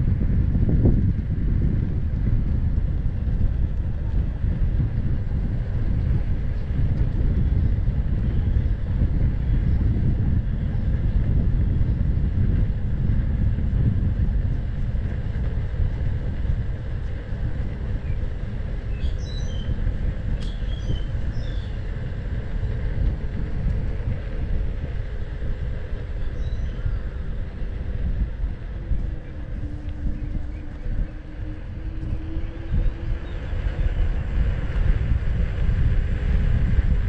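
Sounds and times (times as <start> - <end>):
wheel rolling on pavement: 0.0 - 37.0
wind buffeting microphone: 0.0 - 37.0.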